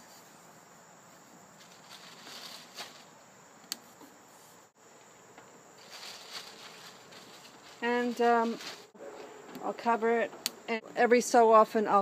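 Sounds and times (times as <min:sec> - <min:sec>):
faint steady outdoor hiss: 0:00.0 - 0:12.0.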